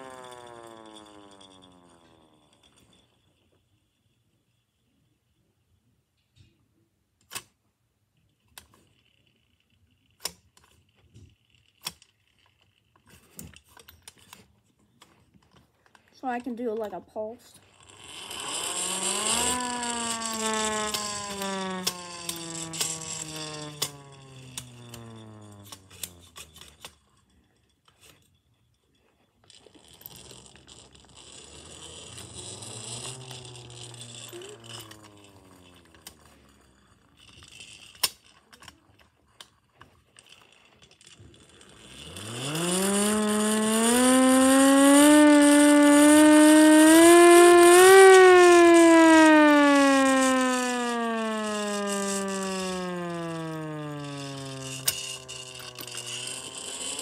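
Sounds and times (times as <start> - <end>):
crank clicking: 0.0 - 3.0, 17.6 - 28.2, 29.4 - 57.0
hand-crank siren wailing: 0.0 - 3.1, 17.8 - 26.9, 30.1 - 37.8, 41.0 - 57.0.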